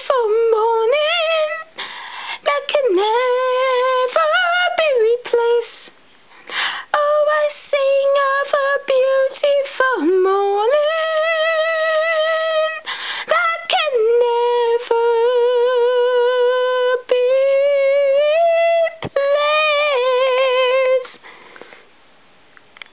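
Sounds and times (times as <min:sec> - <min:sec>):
woman singing unaccompanied: 0:00.0 - 0:21.2
singer breathing: 0:01.7 - 0:02.5, 0:06.3 - 0:06.9, 0:12.8 - 0:13.3, 0:21.0 - 0:22.0.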